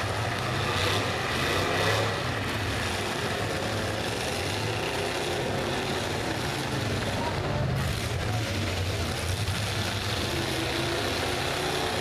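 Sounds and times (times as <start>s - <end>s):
car engines running: 0.0s - 12.0s.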